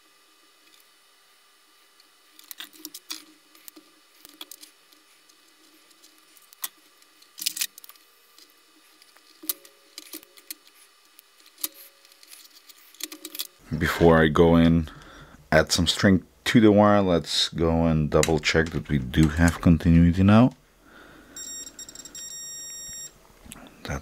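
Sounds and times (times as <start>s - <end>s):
wires rustling: 2.0s - 15.0s.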